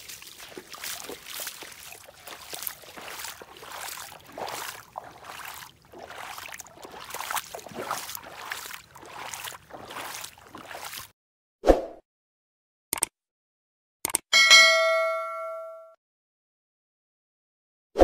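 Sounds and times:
boots wading through muddy water: 0.0s - 11.1s.

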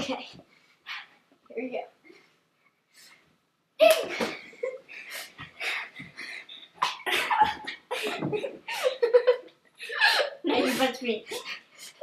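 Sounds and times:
girls grunting and yelping: 9.8s - 12.0s.

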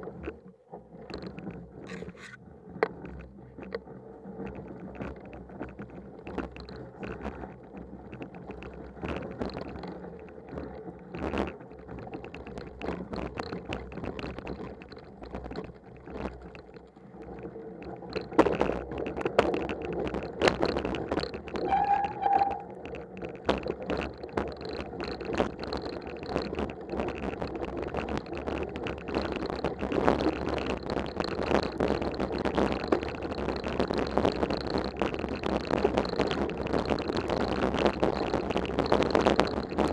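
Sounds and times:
bike rattling over bumps: 0.0s - 39.9s
bike tyres rolling through snow: 0.0s - 39.9s
brief squeak: 21.6s - 22.7s.

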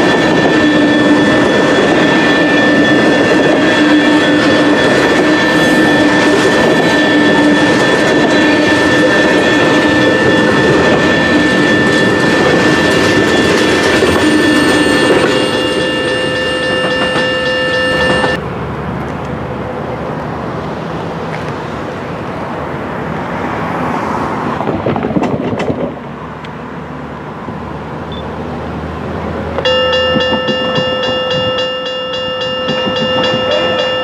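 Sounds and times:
crossing bell ringing: 0.0s - 18.4s, 29.6s - 34.0s
train wheels rumbling and clattering: 0.0s - 21.6s, 23.5s - 26.6s, 29.0s - 34.0s.

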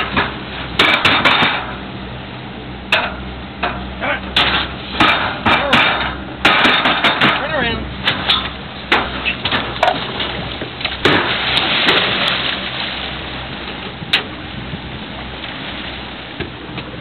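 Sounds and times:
powerboat engine running: 0.0s - 17.0s
water rushing and splashing: 0.0s - 17.0s
sharp knocks: 4.4s - 7.5s.

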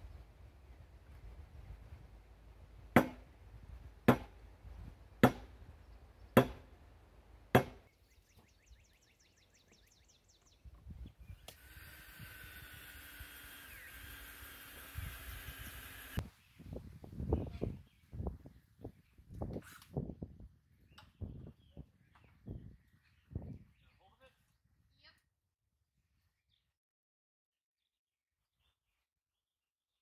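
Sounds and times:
cordless drill running: 11.5s - 16.2s.

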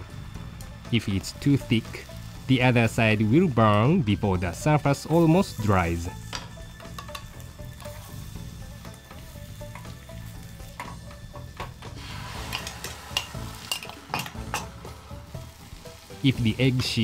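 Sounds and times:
egg sizzling in a pan: 0.0s - 17.0s
chopsticks clicking on pan: 6.4s - 8.0s, 10.7s - 11.9s, 12.5s - 14.8s.

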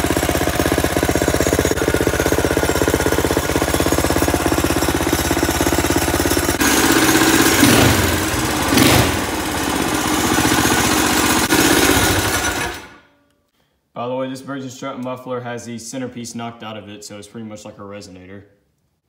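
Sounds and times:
small engine running: 0.0s - 13.0s.

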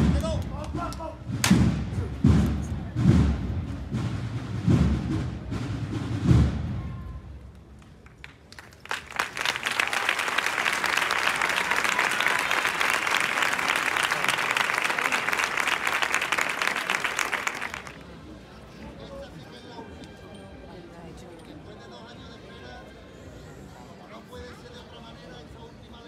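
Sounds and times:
crowd applauding: 7.8s - 18.2s.

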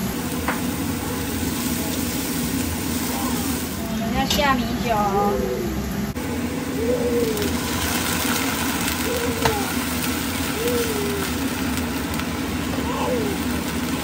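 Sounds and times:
pan sizzling: 0.0s - 14.0s
low rising and falling calls: 6.6s - 11.6s.

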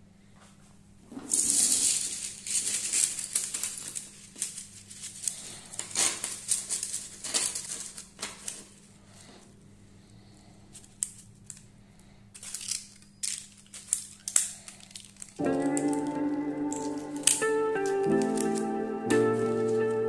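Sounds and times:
bamboo sticks clattering: 1.1s - 8.8s, 12.4s - 20.0s.

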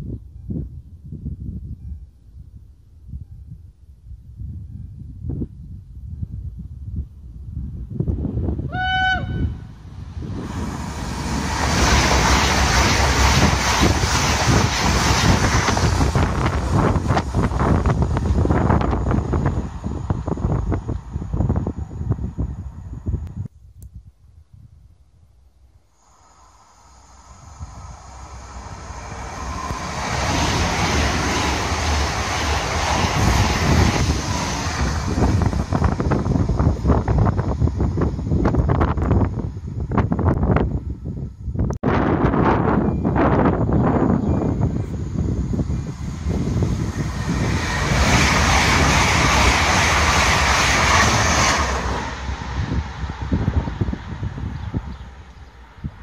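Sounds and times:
train wheels rushing on rails: 9.1s - 21.8s, 26.3s - 40.4s, 42.4s - 56.0s.

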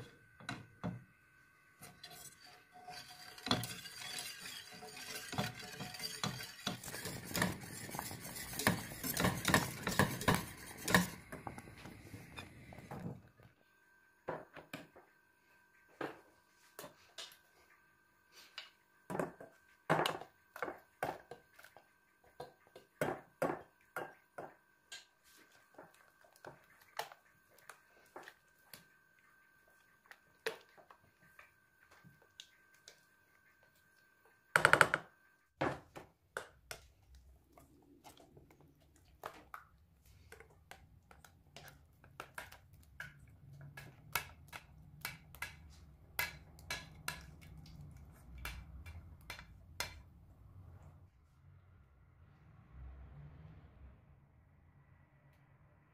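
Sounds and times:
utensils clinking against saucepan: 1.8s - 11.5s, 41.6s - 50.0s.

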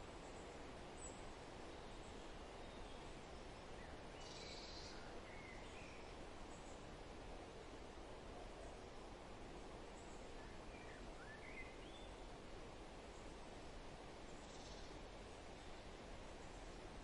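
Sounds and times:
outdoor background noise: 0.0s - 17.0s
faint bird chirps: 3.8s - 6.8s, 10.0s - 12.3s, 14.3s - 15.0s.

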